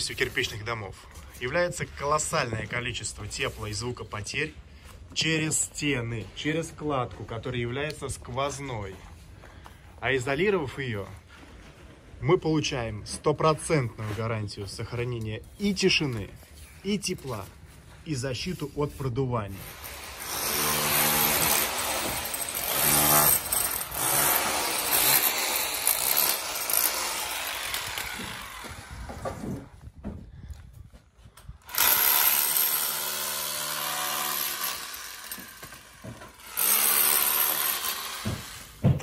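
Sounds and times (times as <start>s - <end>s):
power tool motor running: 19.8s - 29.0s.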